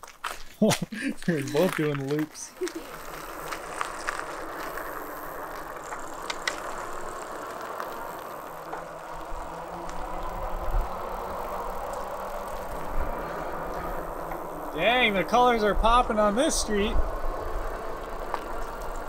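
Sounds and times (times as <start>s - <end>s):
bicycle tyre noise on pavement: 0.0s - 19.0s
wind rumbling on microphone: 9.0s - 19.0s.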